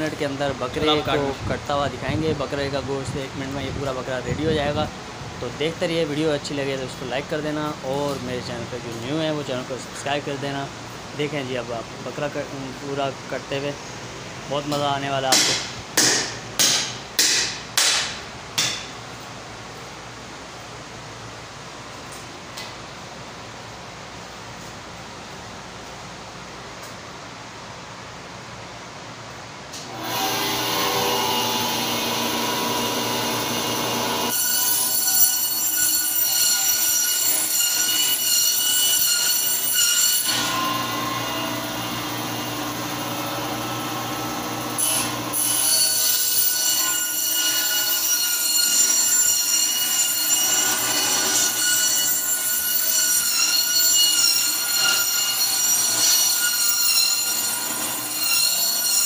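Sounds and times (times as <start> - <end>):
band saw humming: 29.9 - 59.0
saw blade squealing: 34.3 - 40.9, 45.4 - 59.0.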